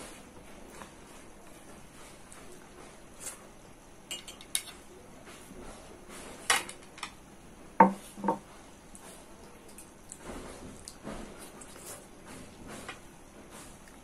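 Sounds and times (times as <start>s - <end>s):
plates clinking: 4.1s - 4.8s
hand eating sounds: 8.9s - 14.0s.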